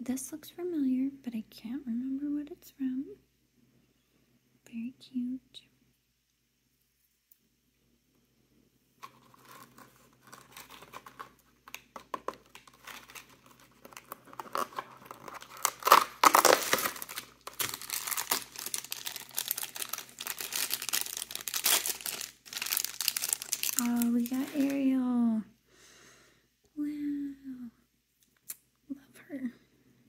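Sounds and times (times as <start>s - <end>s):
packaging crinkling and tearing: 9.0s - 24.9s.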